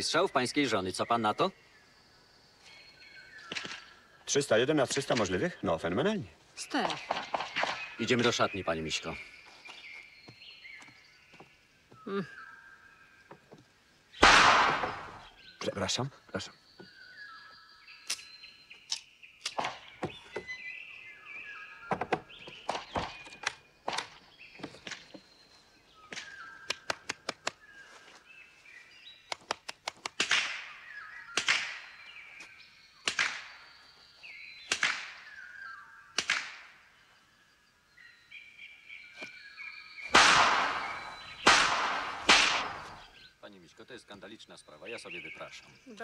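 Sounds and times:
birds chirping: 0:00.0 - 0:46.0
pistol shots with echo: 0:14.2 - 0:15.3, 0:40.1 - 0:43.1.

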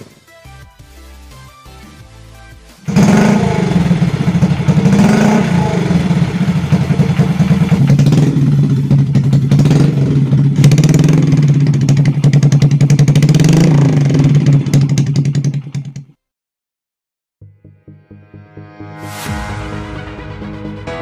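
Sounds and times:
motorcycle engine idling with throttle blips: 0:02.9 - 0:16.0.

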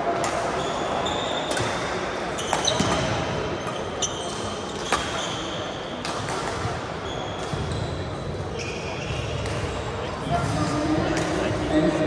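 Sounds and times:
sports hall din: 0:00.0 - 0:12.0
shoe squeaks on court floor: 0:00.6 - 0:06.0, 0:06.6 - 0:09.7.

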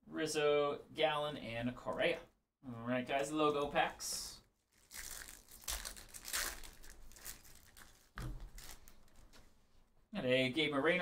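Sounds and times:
foil wrapper crinkling and tearing: 0:04.6 - 0:09.2.

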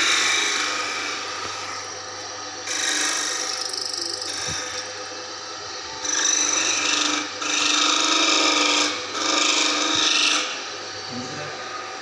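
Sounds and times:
metal file rasping on metal shaft: 0:02.6 - 0:04.9, 0:06.0 - 0:10.6.

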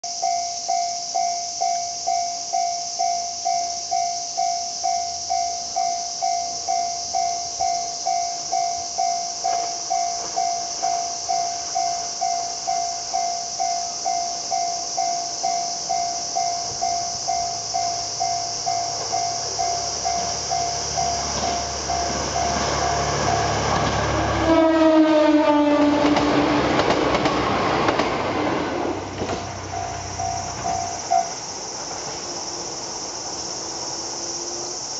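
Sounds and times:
steady high hiss: 0:00.0 - 0:24.4, 0:26.6 - 0:34.9
diesel train rumbling: 0:01.6 - 0:34.9
train rushing past: 0:03.0 - 0:34.9
train horn chord: 0:21.2 - 0:26.5.

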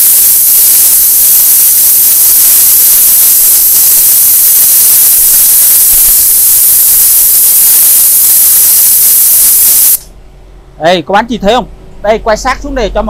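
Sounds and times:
pressure washer jet hissing: 0:00.0 - 0:10.1.

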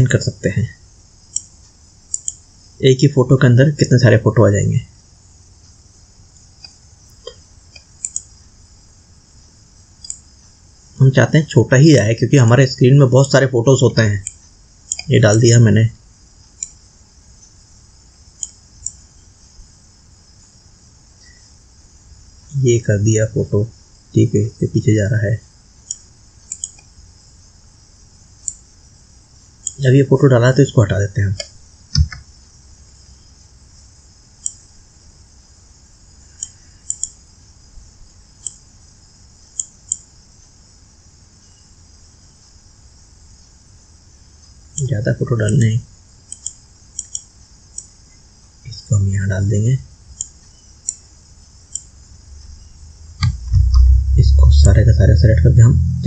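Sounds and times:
steady high-pitched hiss: 0:00.0 - 0:56.0
computer mouse clicks: 0:01.3 - 0:01.5, 0:02.1 - 0:02.4, 0:06.6 - 0:08.3, 0:10.0 - 0:10.3, 0:14.2 - 0:15.1, 0:16.6 - 0:16.8, 0:18.4 - 0:19.0, 0:25.9 - 0:26.9, 0:34.4 - 0:34.6, 0:36.4 - 0:37.2, 0:38.4 - 0:38.6, 0:39.6 - 0:40.1, 0:46.3 - 0:47.9, 0:50.2 - 0:51.0.

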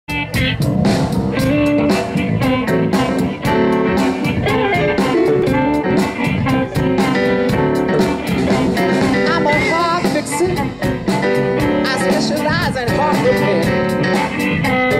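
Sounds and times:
electric guitar: 0:00.1 - 0:14.9
keyboard: 0:00.1 - 0:14.9
steady drum beat: 0:00.1 - 0:14.9
harmonica: 0:04.5 - 0:07.2.

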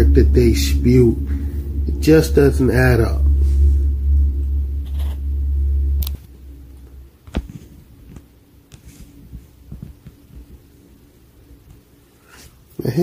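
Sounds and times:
loud low hum: 0:00.0 - 0:08.1.

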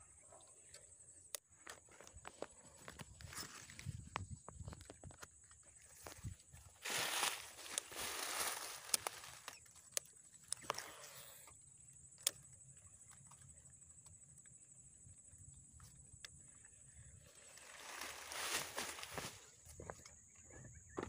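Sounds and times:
footsteps crunching through dry grass: 0:02.3 - 0:09.7, 0:17.3 - 0:20.0.

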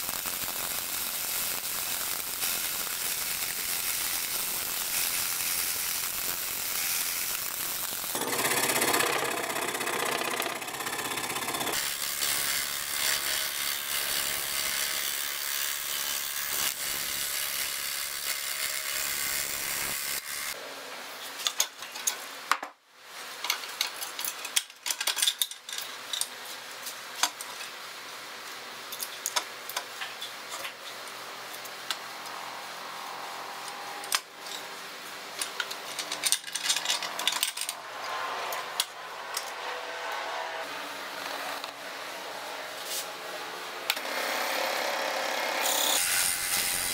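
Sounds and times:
scroll saw cutting wood: 0:02.1 - 0:20.6, 0:37.1 - 0:41.8, 0:43.8 - 0:46.9.

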